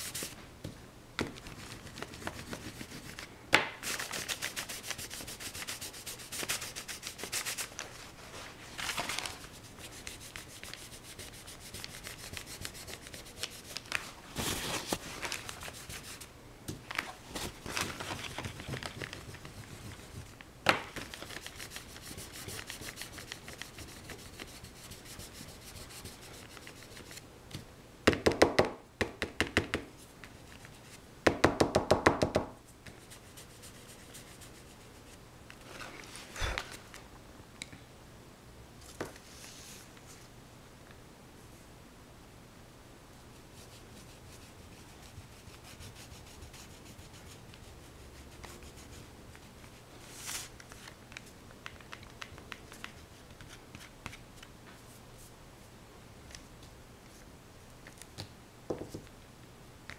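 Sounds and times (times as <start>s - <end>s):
painting tool scrubbing a surface: 3.8s - 7.7s, 9.4s - 13.8s, 21.1s - 27.2s.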